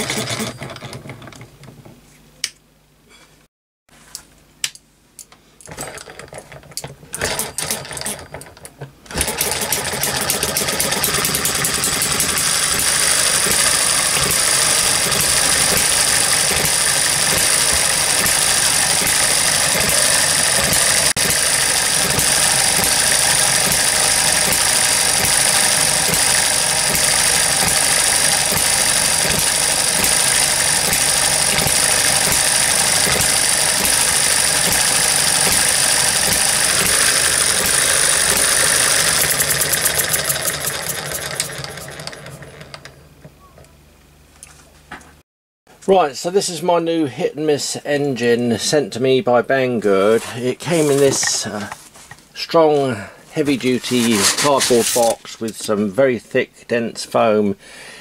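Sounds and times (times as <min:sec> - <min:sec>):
model engine clattering: 0:00.0 - 0:01.5, 0:05.7 - 0:43.0.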